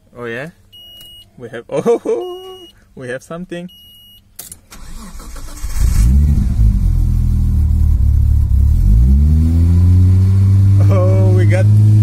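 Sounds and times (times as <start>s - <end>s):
car engine starting and revving: 4.7s - 12.0s.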